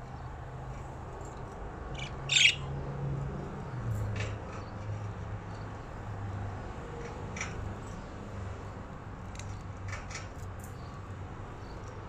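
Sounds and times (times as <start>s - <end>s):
budgerigars chirping and clicking: 2.0s - 2.6s.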